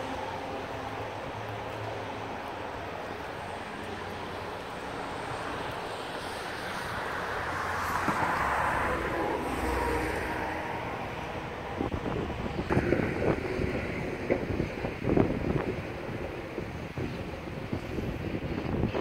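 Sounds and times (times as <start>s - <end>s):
highway traffic rushing: 0.0s - 19.0s
vehicle passing loudly: 7.1s - 12.0s.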